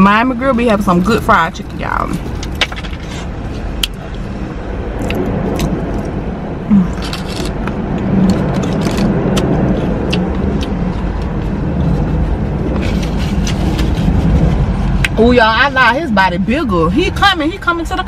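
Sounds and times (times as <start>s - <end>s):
low vehicle rumble: 0.0s - 18.0s
chewing crunchy food: 5.0s - 6.2s, 6.9s - 14.4s
sharp crackles and mouth smacks: 5.0s - 6.2s, 6.9s - 11.4s.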